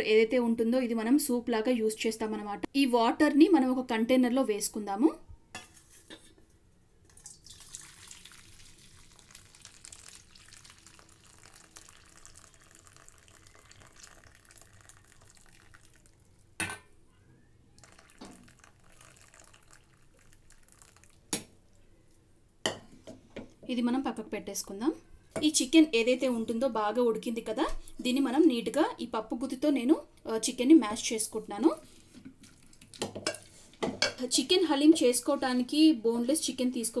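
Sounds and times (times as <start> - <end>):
water pouring into steel bowl: 7.1 - 16.3, 17.8 - 21.3.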